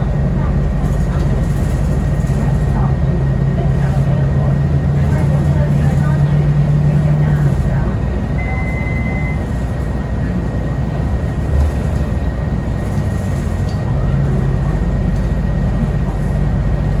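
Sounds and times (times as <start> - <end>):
bus rumble: 0.0 - 17.0.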